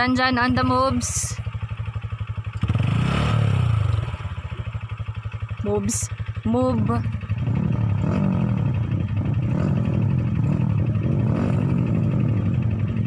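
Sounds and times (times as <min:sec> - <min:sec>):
dirt bike engine revving: 0:02.5 - 0:04.9, 0:05.6 - 0:13.0.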